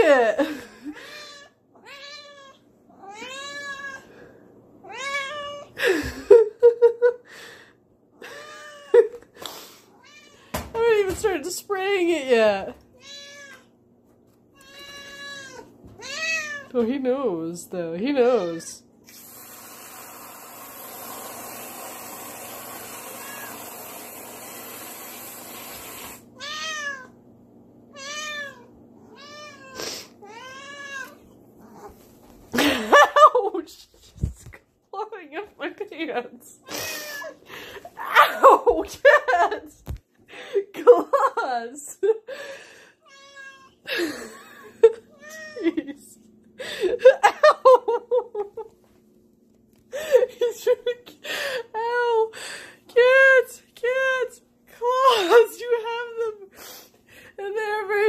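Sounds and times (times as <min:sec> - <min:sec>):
cat meowing: 0:01.1 - 0:04.1, 0:04.9 - 0:05.7, 0:10.0 - 0:10.5, 0:13.0 - 0:13.7, 0:14.6 - 0:16.7, 0:26.4 - 0:27.1, 0:28.0 - 0:31.2, 0:43.1 - 0:43.8
aerosol can hissing: 0:19.1 - 0:26.3.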